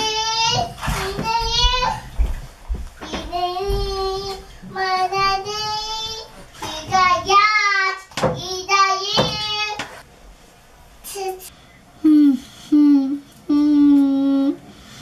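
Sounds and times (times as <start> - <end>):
toddler singing wordless notes: 0.0 - 2.0, 3.0 - 9.9.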